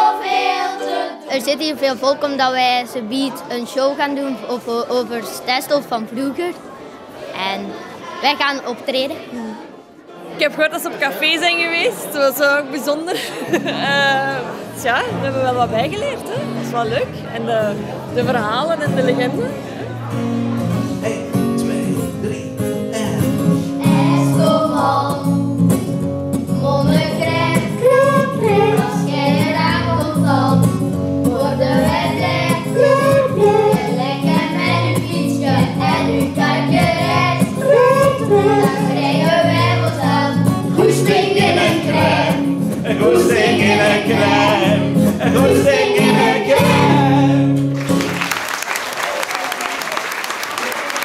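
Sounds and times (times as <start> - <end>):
children singing together: 0.0 - 1.3, 23.6 - 25.5, 26.5 - 47.4
guitar chords: 13.6 - 48.2.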